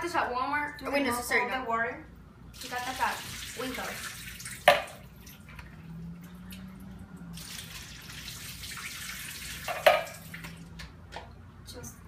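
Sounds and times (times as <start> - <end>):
liquid dripping into sink: 2.6 - 11.3.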